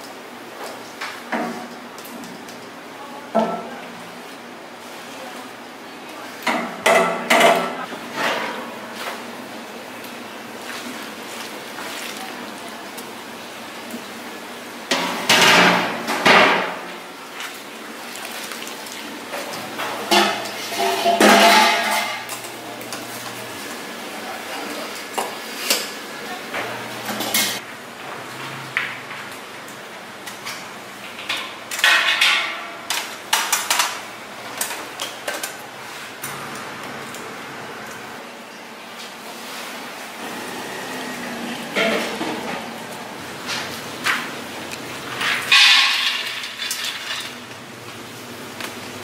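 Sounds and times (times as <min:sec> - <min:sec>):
metal pots clanking: 0:19.7 - 0:22.5, 0:45.1 - 0:47.4
metal scraping on metal: 0:20.6 - 0:22.2.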